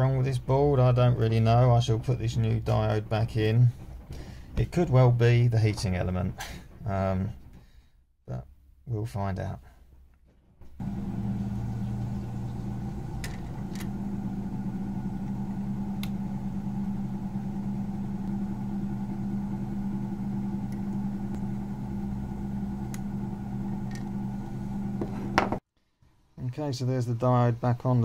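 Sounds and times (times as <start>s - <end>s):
low machine hum: 10.7s - 25.6s.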